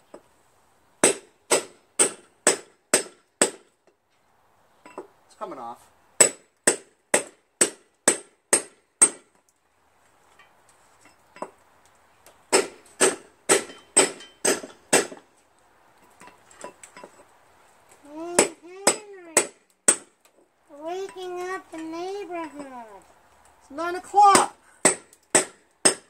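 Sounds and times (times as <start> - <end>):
sledgehammer striking steel chisel: 1.0 - 3.6, 6.2 - 9.3, 12.5 - 15.2, 18.3 - 20.2, 24.3 - 26.0.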